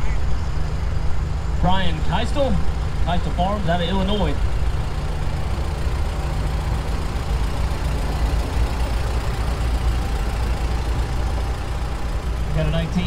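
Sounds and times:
truck engine driving past: 0.0 - 13.0.

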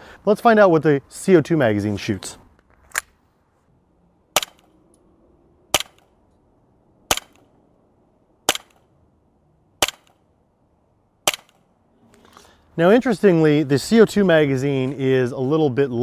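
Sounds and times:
airsoft pistol shots: 4.3 - 4.7, 5.7 - 6.1, 7.1 - 7.4, 8.5 - 8.8, 9.8 - 10.2, 11.2 - 11.6.

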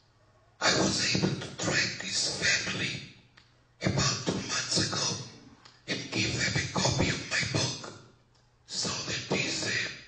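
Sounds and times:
person talking: 0.6 - 3.0, 3.8 - 7.9, 8.7 - 10.0.

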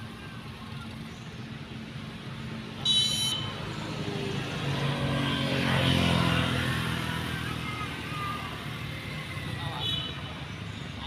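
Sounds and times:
vehicle engine passing by: 3.5 - 9.8.

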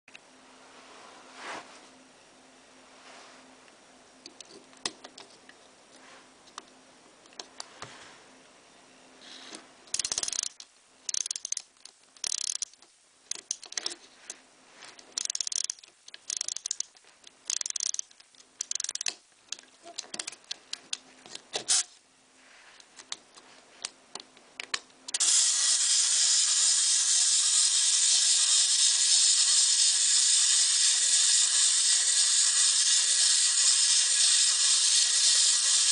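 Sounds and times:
clockwork key ratcheting: 9.9 - 13.9, 15.2 - 16.9, 17.5 - 19.2
clockwork motor whirring: 10.0 - 11.6, 12.2 - 12.8, 15.2 - 16.9, 17.5 - 19.1, 25.1 - 35.9.

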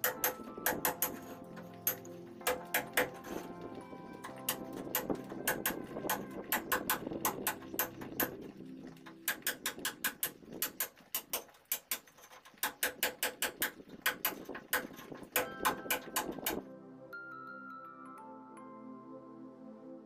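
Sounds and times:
hammer striking chisel on brick: 0.0 - 3.5, 9.3 - 16.6.

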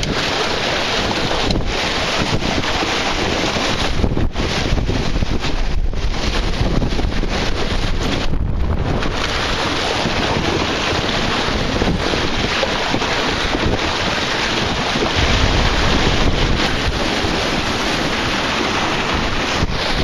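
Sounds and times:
water rushing along hull: 0.0 - 20.0
wind buffeting microphone: 0.0 - 20.0.

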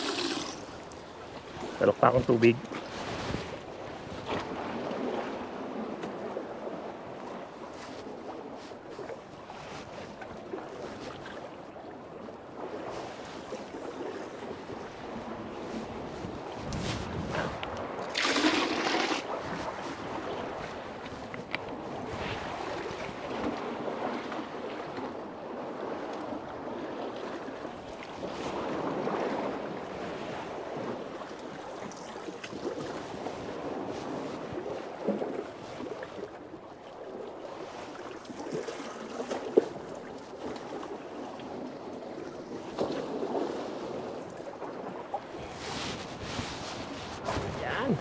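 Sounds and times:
wind on microphone: 0.0 - 11.4, 12.5 - 31.2, 40.8 - 48.0
water sloshing and lapping: 0.0 - 48.0.

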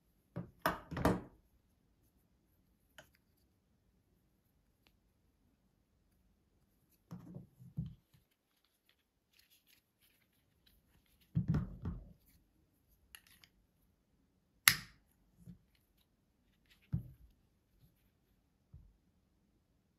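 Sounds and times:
faint plastic scratching: 6.8 - 13.6.

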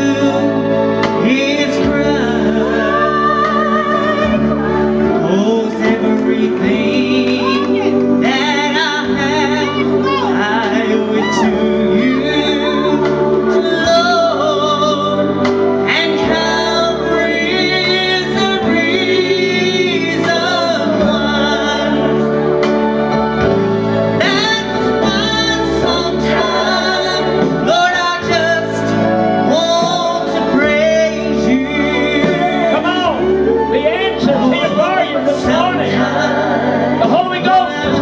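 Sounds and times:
instrumental chords and bass: 0.0 - 38.0
man singing gospel song: 0.0 - 38.0.

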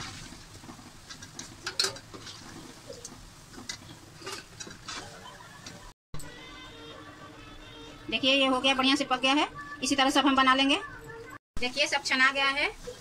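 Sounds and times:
oil sizzling: 0.0 - 10.7, 11.6 - 13.0
metal spoon clinking on pan: 1.6 - 2.1.

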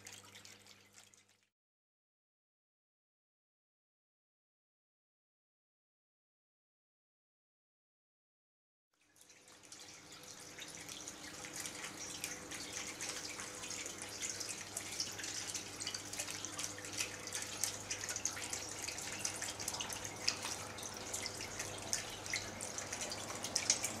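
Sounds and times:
water trickling into stone basin: 0.0 - 1.5, 9.0 - 24.0
faint steady hum: 9.0 - 24.0.

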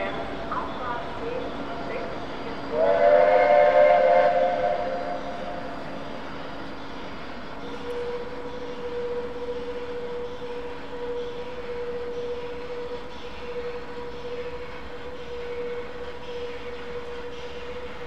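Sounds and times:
steam locomotive whistle: 2.7 - 5.9, 7.6 - 18.0.

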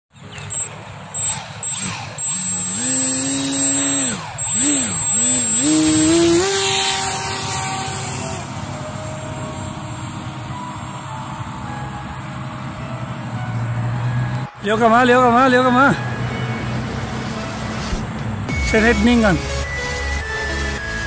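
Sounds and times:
electric model plane motor whining: 0.2 - 12.4, 18.8 - 21.0.

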